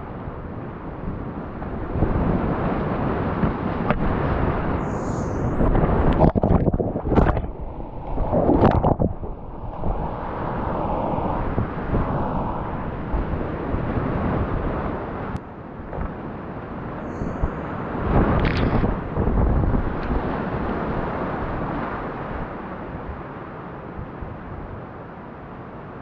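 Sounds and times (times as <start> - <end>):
water washing over microphone: 4.8 - 13.4.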